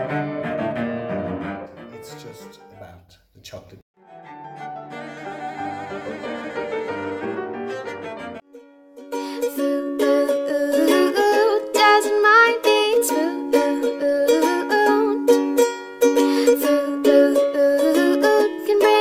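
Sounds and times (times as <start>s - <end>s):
plucked string melody: 4.0s - 19.0s.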